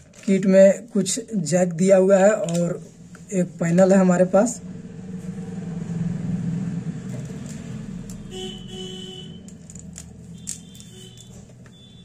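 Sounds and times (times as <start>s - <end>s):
wire connectors clicking: 2.3s - 2.8s, 7.1s - 8.6s, 9.2s - 11.9s
vehicle engine rumble: 4.6s - 11.7s
car horn honking: 8.2s - 9.5s, 10.3s - 12.0s.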